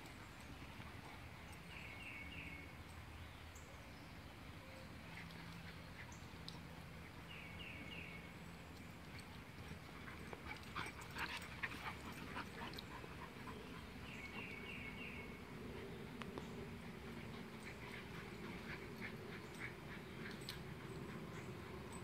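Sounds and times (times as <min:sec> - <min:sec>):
puppies yipping and scuffling: 0:08.7 - 0:15.2, 0:16.6 - 0:22.0.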